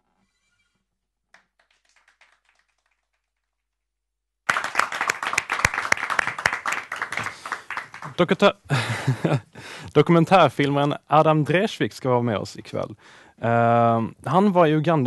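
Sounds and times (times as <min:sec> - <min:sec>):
audience applause: 0:01.4 - 0:03.2, 0:04.5 - 0:08.5.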